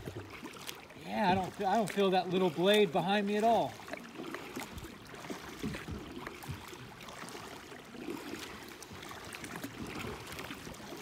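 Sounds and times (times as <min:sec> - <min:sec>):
paddle splashing in water: 0:00.0 - 0:11.0.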